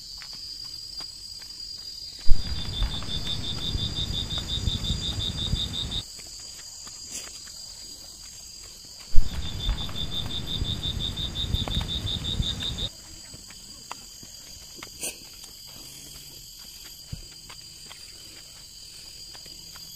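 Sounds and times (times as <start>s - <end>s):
high insect drone: 0.0s - 19.9s
low rumbling noise: 2.3s - 6.0s, 9.2s - 12.9s
rapid pulsing chirp: 2.3s - 6.0s, 9.2s - 12.9s.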